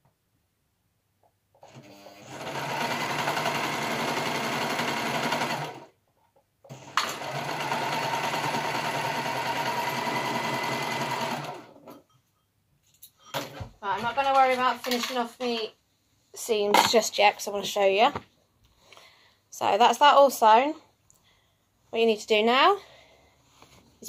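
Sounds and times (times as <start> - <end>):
overlocker stitching fabric: 1.6 - 6.0, 6.7 - 12.0.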